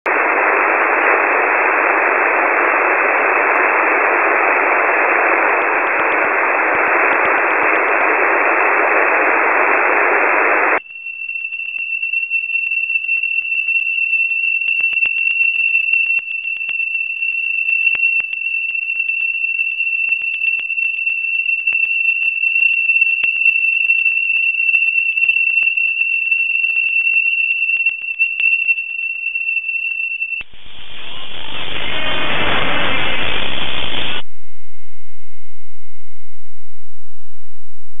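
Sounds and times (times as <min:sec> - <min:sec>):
radio static hiss: 0:00.1 - 0:10.8, 0:30.4 - 0:34.2
steady high whistle: 0:00.1 - 0:34.3
crackling clicks: 0:14.6 - 0:30.5.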